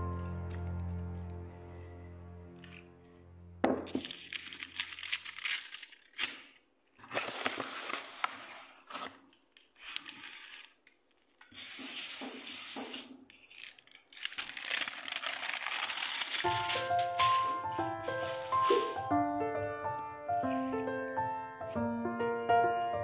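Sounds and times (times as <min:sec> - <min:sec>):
foil crinkling and rustling: 0:04.0 - 0:06.3, 0:07.0 - 0:10.7, 0:14.2 - 0:19.1.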